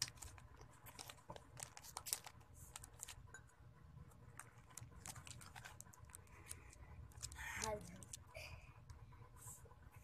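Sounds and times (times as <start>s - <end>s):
plastic wrapper crinkling: 0.0s - 3.3s, 4.2s - 8.3s.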